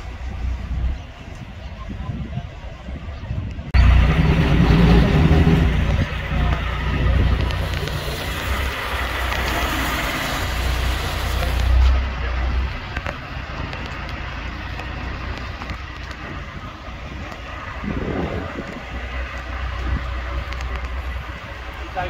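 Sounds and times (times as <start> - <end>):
road and traffic noise: 0.0 - 22.0
vehicle engine rumble: 0.0 - 22.0.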